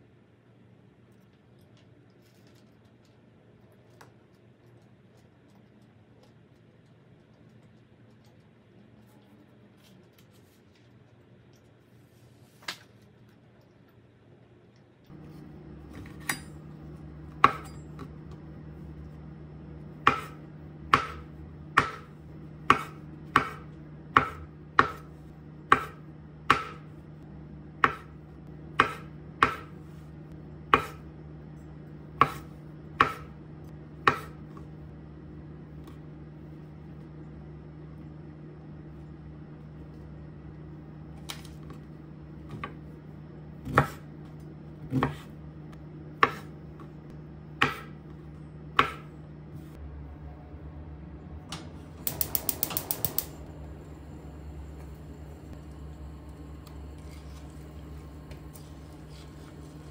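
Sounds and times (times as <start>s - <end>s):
low hum: 15.1s - 59.9s
knife chopping on cutting board: 17.3s - 18.1s, 20.0s - 25.1s, 25.7s - 26.9s, 27.8s - 28.2s, 28.8s - 29.7s, 30.7s - 31.0s, 32.2s - 33.3s, 34.0s - 34.5s, 43.6s - 44.1s, 44.9s - 45.3s, 46.2s - 46.9s, 47.6s - 48.0s, 48.8s - 49.1s.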